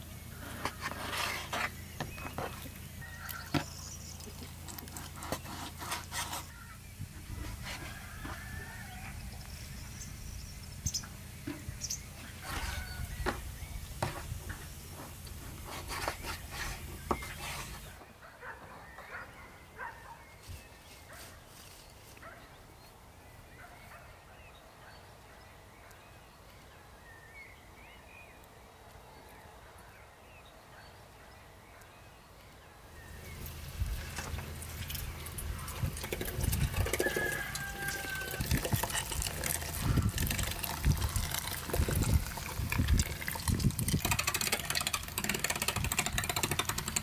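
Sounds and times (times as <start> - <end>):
sharp knocks and clicks: 43.6 - 47.0.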